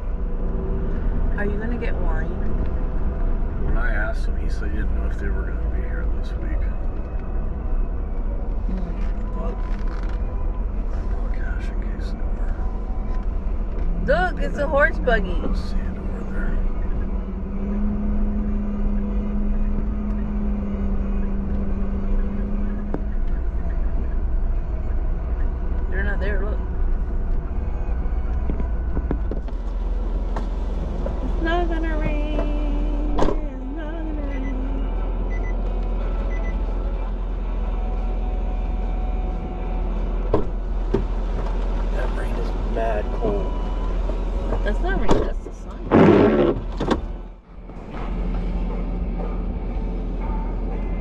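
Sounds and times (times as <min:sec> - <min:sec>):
vehicle engine rumble: 0:00.0 - 0:51.0.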